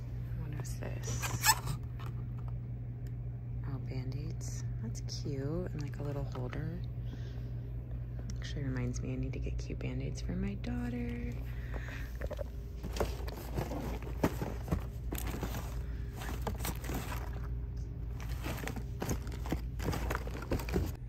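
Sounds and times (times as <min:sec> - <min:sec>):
steady low hum: 0:00.0 - 0:21.0
plastic packaging crinkling: 0:12.2 - 0:21.0.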